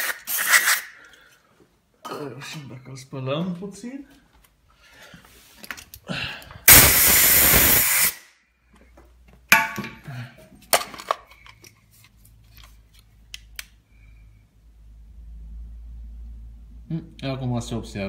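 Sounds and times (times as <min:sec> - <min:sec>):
spray can hissing: 0:00.0 - 0:00.9, 0:06.7 - 0:08.2.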